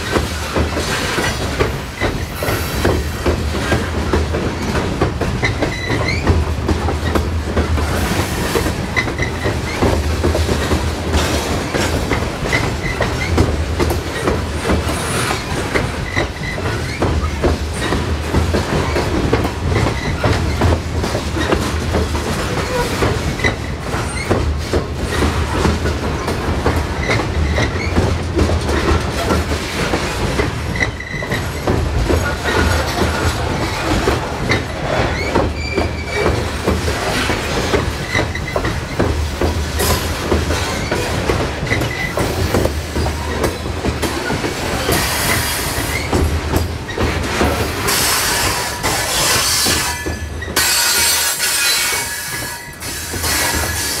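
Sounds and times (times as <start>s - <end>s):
heavy train rumble: 0.0s - 54.0s
train wheels clacking over rail joints: 0.0s - 54.0s
high wheel squeals: 48.1s - 54.0s.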